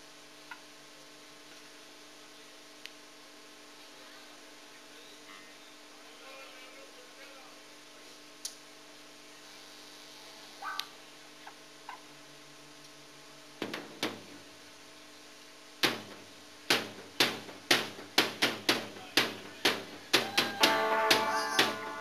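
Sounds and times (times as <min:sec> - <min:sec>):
drum beat of sharp strokes: 0:15.8 - 0:22.0
amplifier hum: 0:19.4 - 0:22.0
electric guitar chord: 0:20.6 - 0:22.0.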